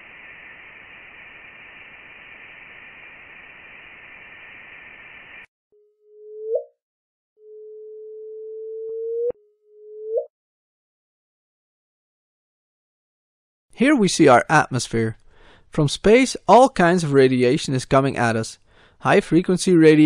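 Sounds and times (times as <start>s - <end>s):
steady hiss with faint high tones: 0.0s - 5.5s.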